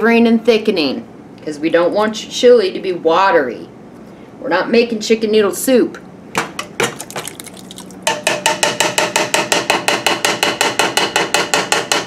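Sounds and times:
tapping on tin can: 0:06.4 - 0:09.7.

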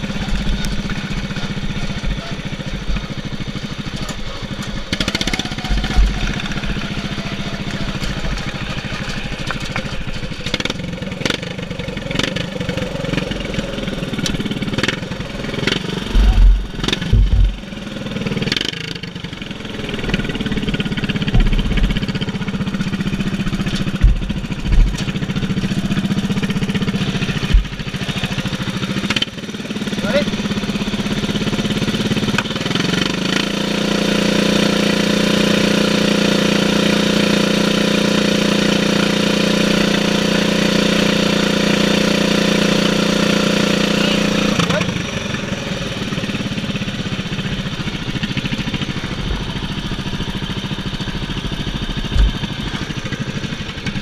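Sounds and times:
lawn mower engine running: 0:00.0 - 0:54.0
low thumps: 0:15.8 - 0:17.8, 0:21.1 - 0:22.4, 0:23.3 - 0:25.5, 0:27.4 - 0:28.0, 0:52.1 - 0:52.6
sharp knocks: 0:16.0 - 0:17.7, 0:21.2 - 0:22.2, 0:23.5 - 0:25.3, 0:27.4 - 0:28.0, 0:52.1 - 0:52.7.

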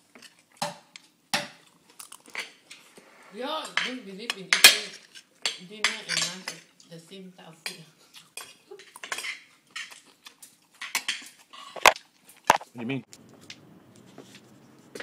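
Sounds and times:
metal spoon scraping a plate: 0:08.4 - 0:10.0.

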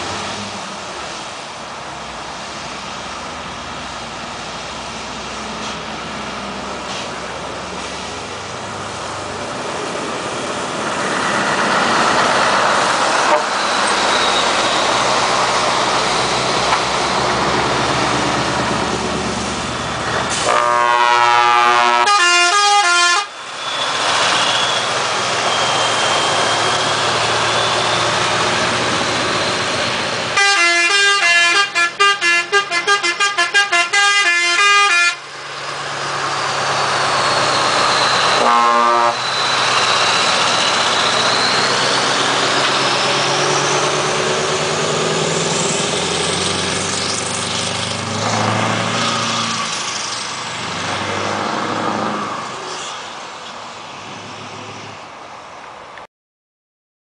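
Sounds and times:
trucks driving past: 0:00.0 - 0:56.1
air horn blasts: 0:13.2 - 0:13.7, 0:20.3 - 0:23.4, 0:30.4 - 0:35.2, 0:38.2 - 0:39.3.

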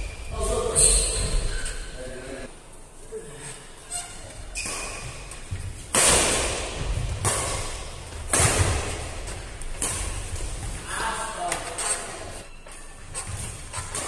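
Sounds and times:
racket hitting shuttlecock: 0:04.6 - 0:10.6.

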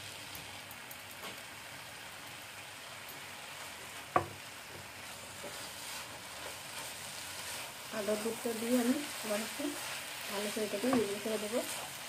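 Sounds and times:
food sizzling in a pan: 0:00.0 - 0:12.0
wooden spatula stirring: 0:03.6 - 0:12.0.

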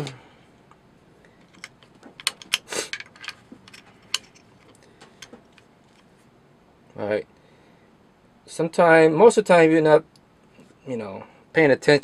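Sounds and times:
small metal clicks: 0:01.4 - 0:06.0.

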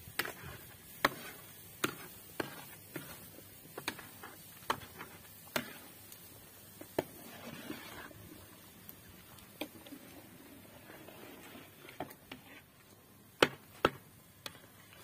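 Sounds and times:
soft rustle: 0:06.8 - 0:13.0.

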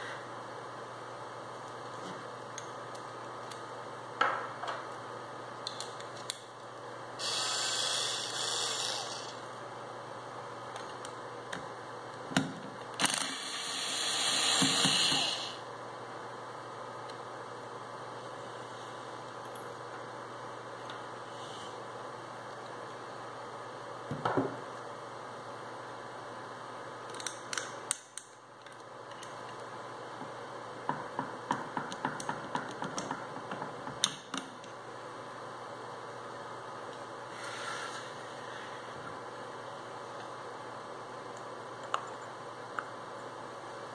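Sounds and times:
electric screwdriver running: 0:07.2 - 0:09.4, 0:13.0 - 0:15.6.

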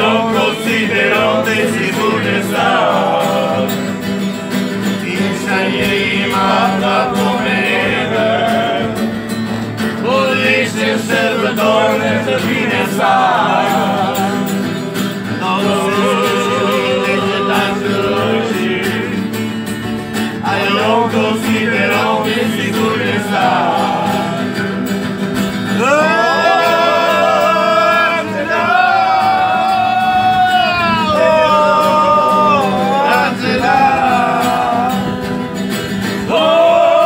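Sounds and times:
acoustic guitar: 0:00.0 - 0:37.0
men singing: 0:00.0 - 0:37.0.

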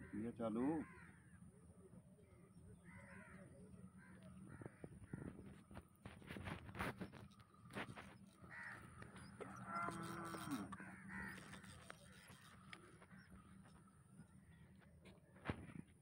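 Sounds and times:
crows cawing: 0:00.0 - 0:01.3, 0:02.8 - 0:05.6, 0:08.4 - 0:13.4
low drawn-out animal call: 0:08.4 - 0:13.4.

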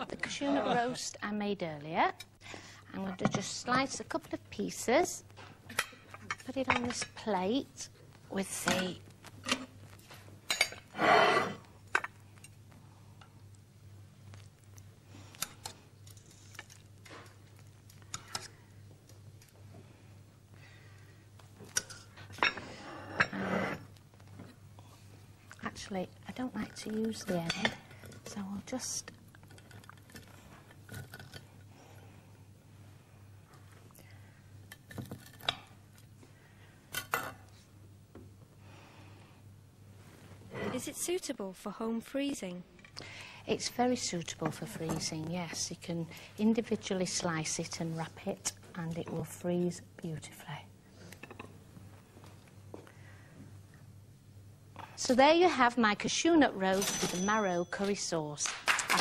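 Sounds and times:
crockery and cutlery clinking: 0:10.5 - 0:12.2, 0:56.7 - 0:58.1
knife scraping ceramic plates: 0:22.3 - 0:23.8.

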